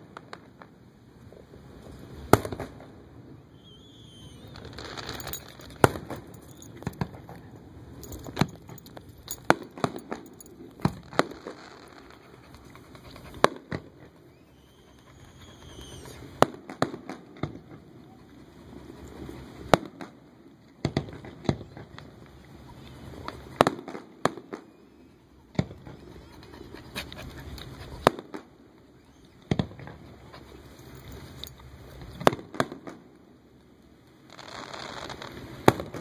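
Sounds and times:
fireworks bursting with bangs: 0.0s - 3.0s, 4.1s - 7.4s, 9.4s - 14.5s, 15.5s - 18.0s, 18.6s - 22.3s, 23.1s - 24.8s, 27.9s - 28.7s, 32.0s - 33.1s, 34.2s - 36.0s.

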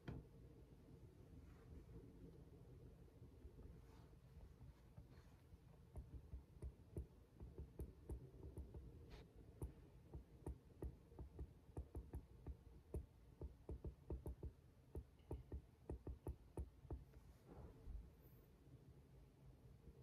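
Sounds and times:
stylus tapping on glass screen: 5.9s - 8.9s, 9.6s - 17.1s.

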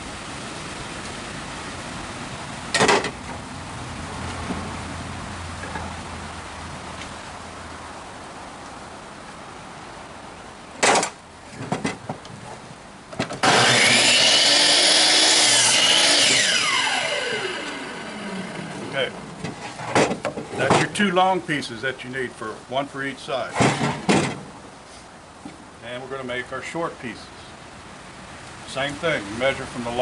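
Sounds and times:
miter saw cutting: 13.4s - 19.2s.

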